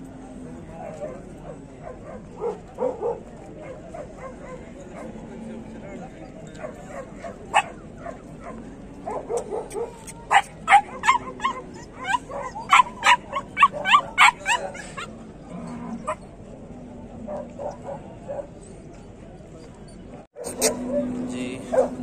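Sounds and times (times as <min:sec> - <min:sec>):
puppy yipping: 0:06.5 - 0:15.1, 0:20.4 - 0:22.0.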